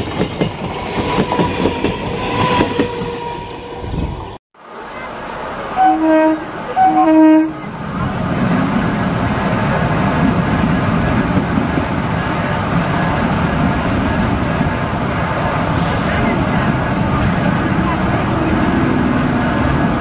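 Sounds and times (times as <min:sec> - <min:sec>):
train coaches passing: 0:00.0 - 0:20.0
train horn blasts: 0:05.6 - 0:07.8.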